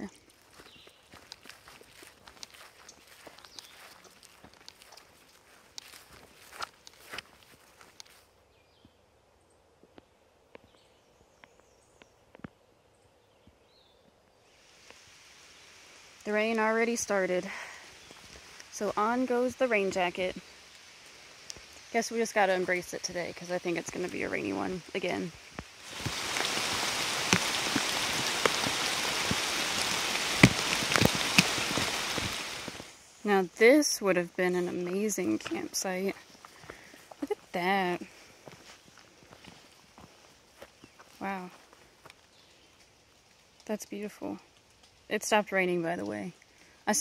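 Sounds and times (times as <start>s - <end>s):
rain falling on foliage: 0.0s - 8.2s, 14.4s - 47.0s
soft hiss: 0.0s - 9.2s, 9.8s - 47.0s
light ticks: 1.2s - 1.6s, 2.3s - 6.0s, 7.9s - 8.2s, 20.7s - 21.9s.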